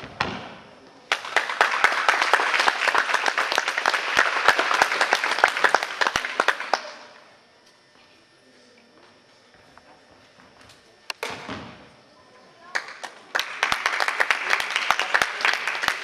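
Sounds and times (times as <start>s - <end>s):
audience applauding: 1.1s - 7.0s, 12.8s - 16.0s.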